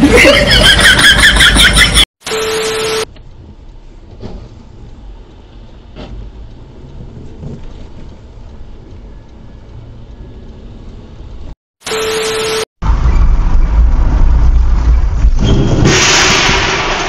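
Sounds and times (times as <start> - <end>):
road and rain noise inside car: 3.1 - 11.6.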